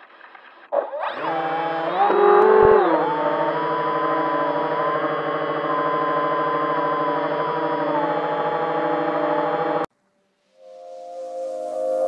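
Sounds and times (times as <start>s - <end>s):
electric motor and propeller whine: 1.0s - 9.9s.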